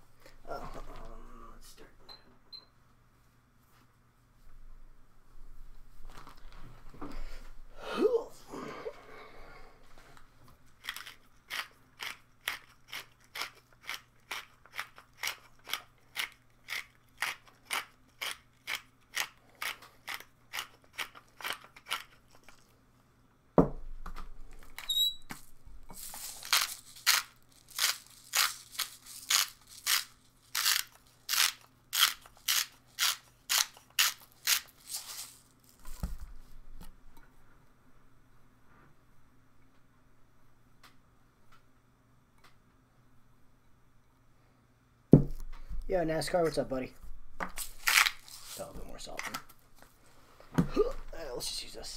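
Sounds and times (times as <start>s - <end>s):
spice grinder crunching: 10.7s - 22.7s, 24.7s - 36.0s, 47.4s - 49.4s
thump: 23.6s - 23.9s, 45.2s - 45.6s.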